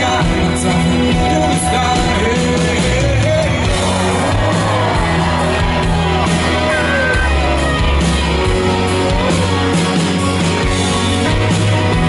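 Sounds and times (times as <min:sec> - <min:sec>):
live rock band playing: 0:00.0 - 0:12.0
audience shouts and whoops: 0:03.7 - 0:10.6.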